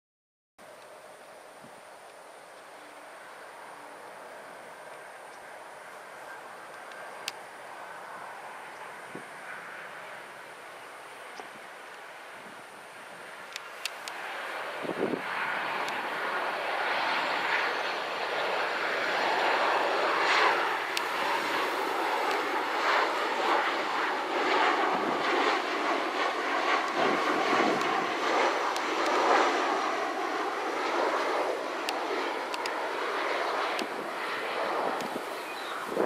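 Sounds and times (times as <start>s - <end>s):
jet airliner passing overhead: 0.7s - 36.0s.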